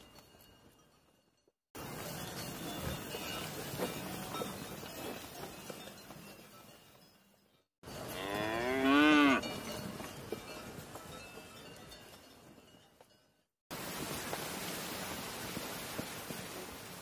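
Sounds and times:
cow mooing: 8.1 - 9.4.

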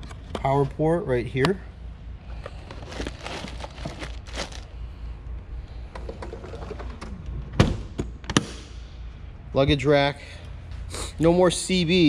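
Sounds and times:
soft handling rustling: 2.3 - 4.8.

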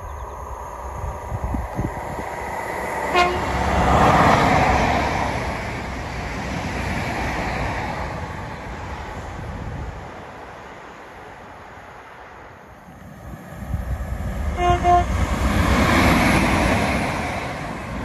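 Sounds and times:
train passing at speed: 0.0 - 18.0
short train horn toot: 3.1 - 3.6, 14.6 - 15.1.

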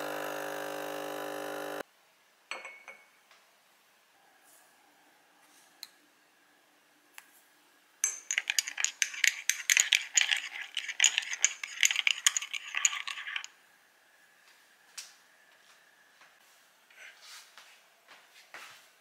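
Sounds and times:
teaspoon clinking in cup: 2.5 - 3.1, 8.0 - 13.5.

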